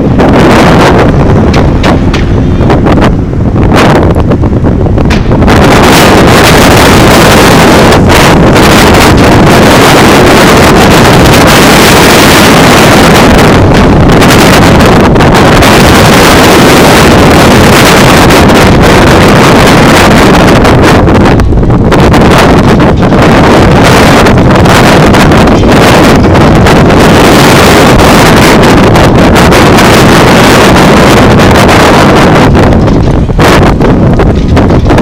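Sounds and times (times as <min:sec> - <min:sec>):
wind buffeting microphone: 0:00.0 - 0:35.0.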